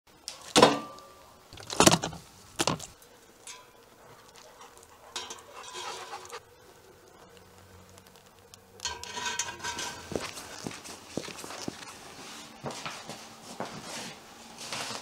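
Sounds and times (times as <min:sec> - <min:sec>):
metal skewers clinking and scraping: 0:03.4 - 0:06.4, 0:08.8 - 0:10.7.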